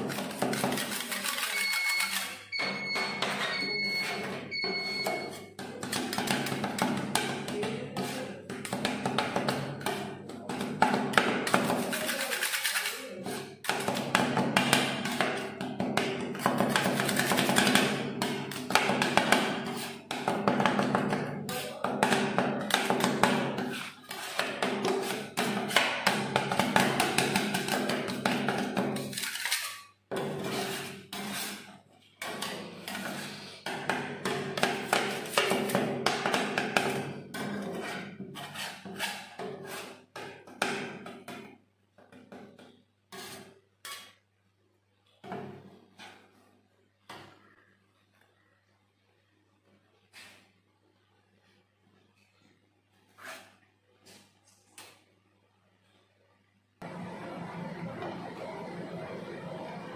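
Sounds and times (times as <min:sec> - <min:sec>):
metal spatulas chopping on steel plate: 0:00.0 - 0:41.5.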